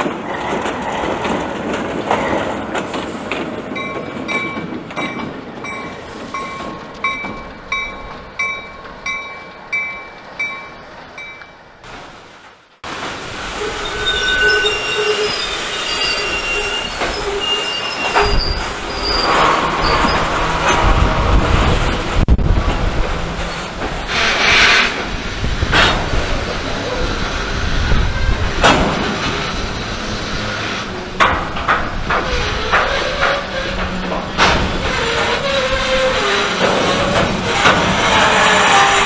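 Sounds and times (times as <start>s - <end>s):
train rumbling past: 0.0s - 39.0s
wheels clacking over rail joints: 0.0s - 39.0s
train wheels squealing: 13.6s - 20.3s.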